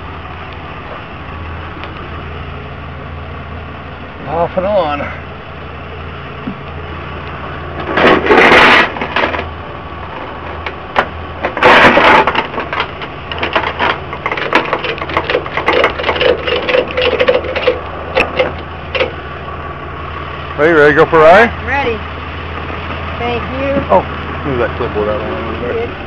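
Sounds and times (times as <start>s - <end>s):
truck engine idling: 0.0s - 26.0s
loud bursts of noise: 7.8s - 9.8s, 10.6s - 19.2s.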